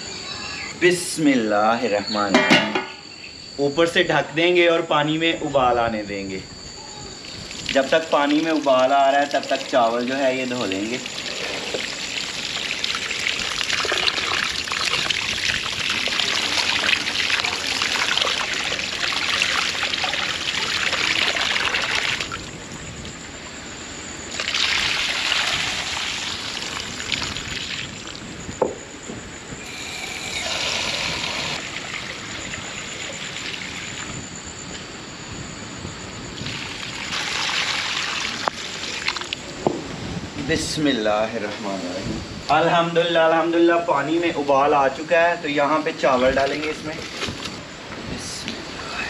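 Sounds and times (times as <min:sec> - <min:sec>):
rinse water poured onto ground: 0:07.6 - 0:22.3.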